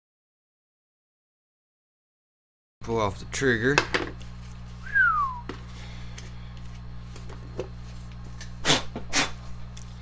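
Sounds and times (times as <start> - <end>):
steady low hum: 2.8 - 10.0.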